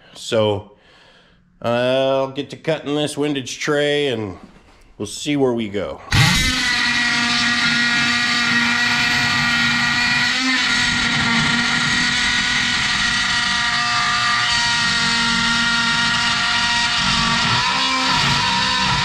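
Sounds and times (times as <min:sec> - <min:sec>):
oscillating tool cutting sheet metal: 0:06.1 - 0:19.0.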